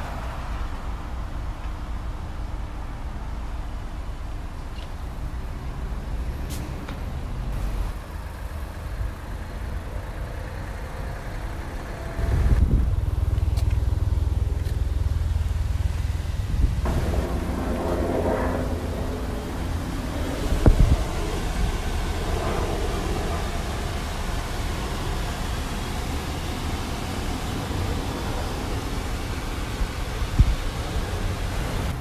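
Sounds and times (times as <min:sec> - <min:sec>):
wind rumble: 0:10.1 - 0:32.0.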